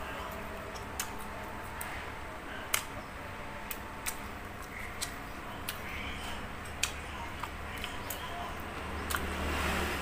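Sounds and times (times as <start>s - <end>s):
crunching fried food: 0.0s - 9.8s
steady low hum: 0.0s - 10.0s.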